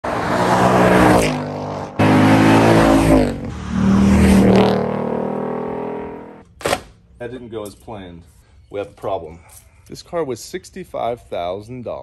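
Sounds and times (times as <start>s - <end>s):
car engine accelerating hard: 0.0s - 6.4s.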